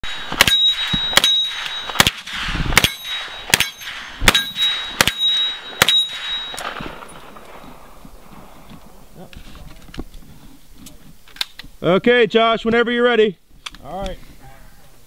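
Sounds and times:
sharp clanging hits: 0.0s - 7.9s.

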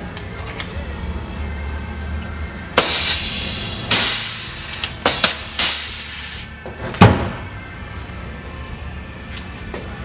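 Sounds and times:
pneumatic tool air hiss: 2.8s - 6.6s.

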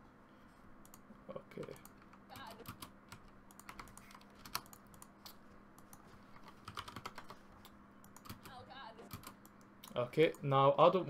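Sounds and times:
low steady hum: 0.0s - 11.0s
computer keyboard typing: 1.6s - 9.6s.

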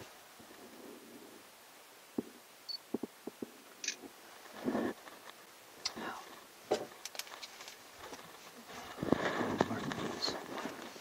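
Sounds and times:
clicks and knocks of handling: 6.7s - 8.4s.

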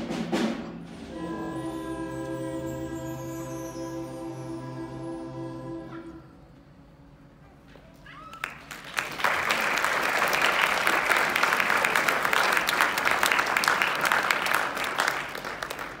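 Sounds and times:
audience applauding: 8.1s - 16.0s.

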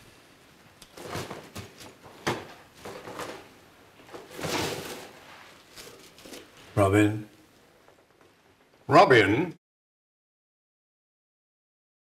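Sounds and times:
rustling on a table: 0.9s - 6.8s.

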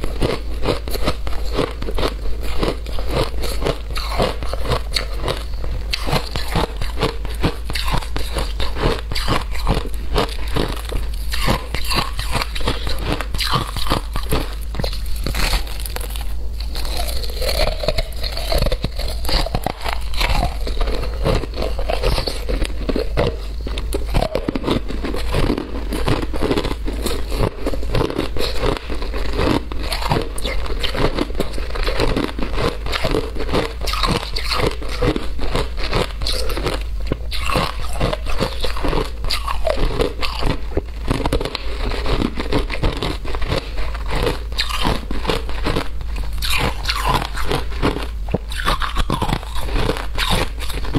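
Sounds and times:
ice being chewed: 0.0s - 50.9s.

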